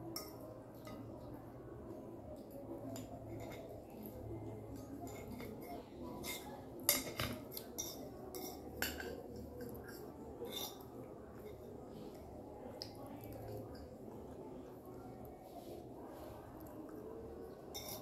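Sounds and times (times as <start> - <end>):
forks clinking on plates: 4.8 - 11.7, 17.7 - 18.0.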